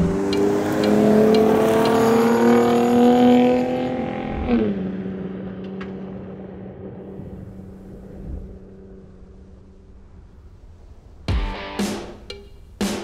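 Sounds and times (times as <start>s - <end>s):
truck engine passing by at speed: 0.0s - 5.5s.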